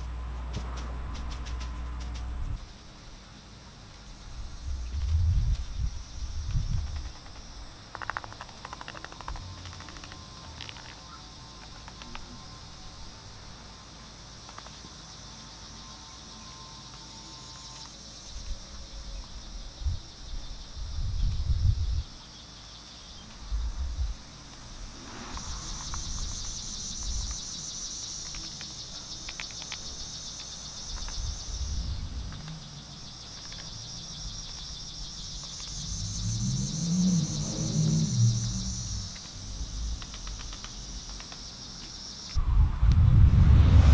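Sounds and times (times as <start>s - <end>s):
wind rumbling on microphone: 0.0s - 2.9s, 4.2s - 13.3s, 18.4s - 22.2s, 23.3s - 28.5s, 30.8s - 41.4s, 42.3s - 43.9s
insects buzzing: 0.0s - 42.5s.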